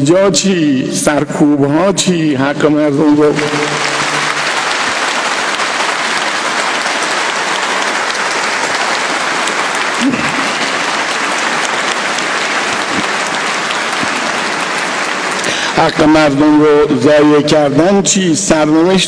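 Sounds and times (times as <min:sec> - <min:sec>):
audience applauding: 0:03.0 - 0:17.4.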